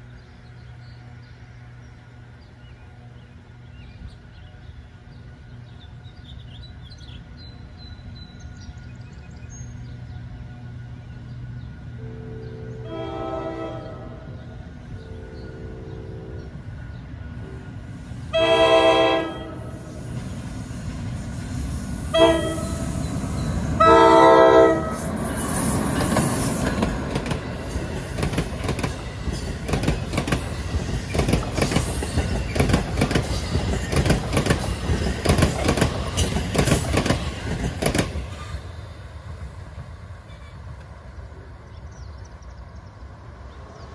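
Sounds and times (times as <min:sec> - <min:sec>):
train horn blasts: 0:12.0 - 0:16.5, 0:18.3 - 0:19.9, 0:22.1 - 0:23.0, 0:23.8 - 0:25.1
train wheels clattering over rail joints: 0:25.5 - 0:38.6.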